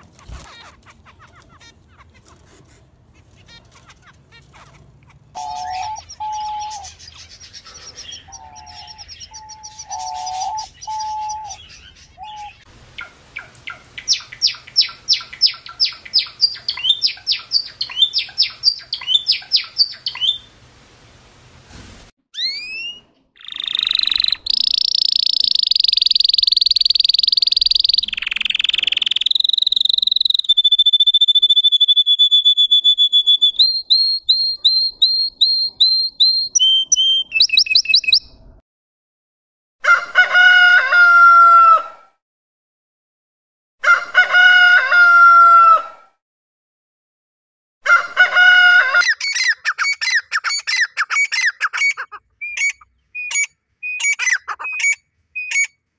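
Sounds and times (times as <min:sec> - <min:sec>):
canary singing trills: 0:00.0 - 0:20.4, 0:22.4 - 0:38.4, 0:49.0 - 0:55.8
rooster crowing: 0:39.8 - 0:42.2, 0:43.8 - 0:46.1, 0:47.8 - 0:49.1.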